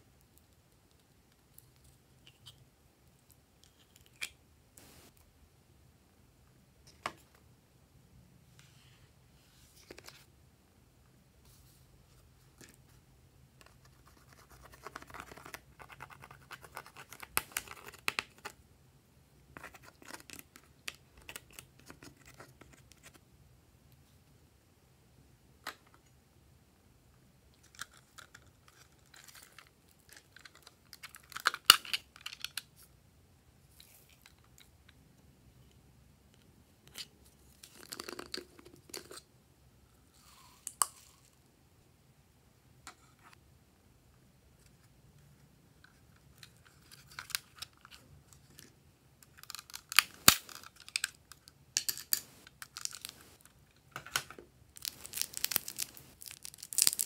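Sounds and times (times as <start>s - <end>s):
scratching and crackling: 51.8s - 53.5s, 54.8s - 57.0s.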